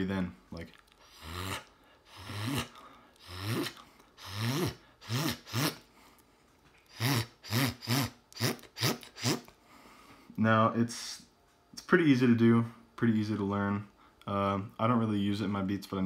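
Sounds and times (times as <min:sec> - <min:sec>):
beatbox buzzing zips: 0:01.0 - 0:05.8, 0:06.9 - 0:09.5.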